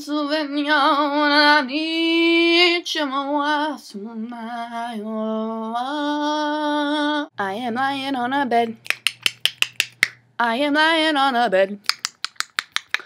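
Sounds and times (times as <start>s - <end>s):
woman singing unaccompanied: 0.0s - 8.8s, 10.4s - 11.9s.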